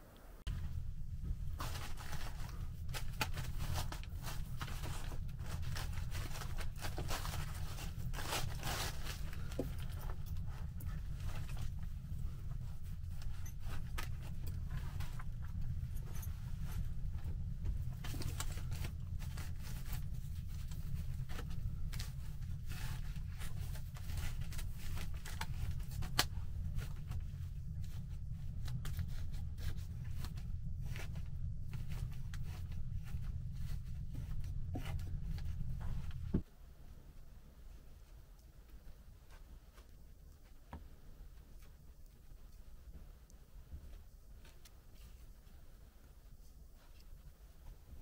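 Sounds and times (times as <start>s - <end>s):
steady low rumble: 0.1s - 48.0s
plastic sheeting crinkling: 0.4s - 36.4s.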